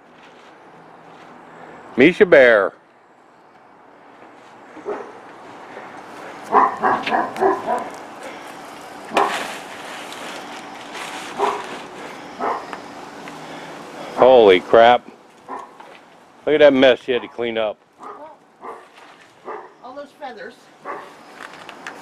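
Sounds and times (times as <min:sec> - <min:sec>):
dog barking: 0:04.8 - 0:05.2, 0:06.5 - 0:07.9, 0:09.1 - 0:09.4, 0:11.4 - 0:11.7, 0:12.4 - 0:12.8, 0:15.5 - 0:15.8, 0:18.0 - 0:19.8, 0:20.8 - 0:21.2.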